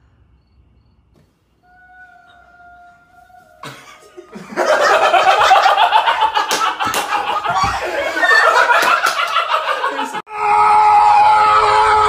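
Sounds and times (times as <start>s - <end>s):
people laughing loudly: 3.6s - 10.3s.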